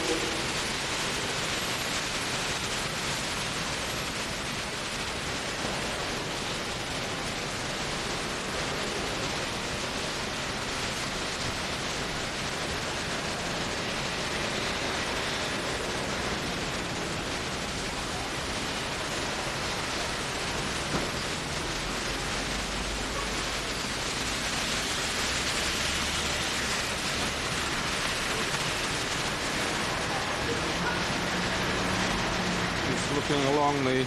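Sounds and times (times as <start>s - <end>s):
heavy rain falling: 0.0s - 34.0s.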